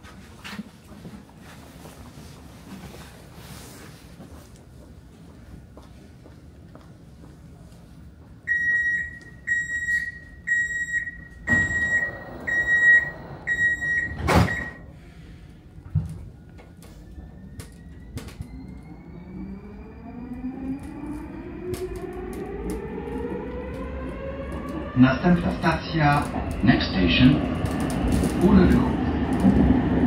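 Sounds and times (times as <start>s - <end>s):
door-closing warning beeps: 8.5s - 14.9s
sliding doors shutting: 10.5s - 15.2s
traction motors whining: 10.5s - 15.2s, 15.9s - 30.0s.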